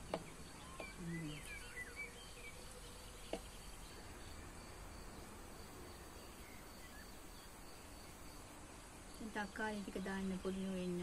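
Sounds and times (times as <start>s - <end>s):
insect drone: 0.0s - 11.0s.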